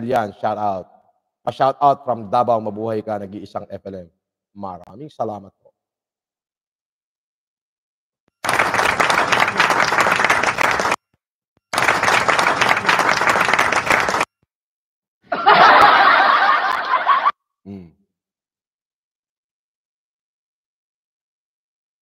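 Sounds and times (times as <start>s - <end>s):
canned applause and laughter: 8.4s - 11.0s, 11.7s - 14.3s, 15.3s - 17.4s.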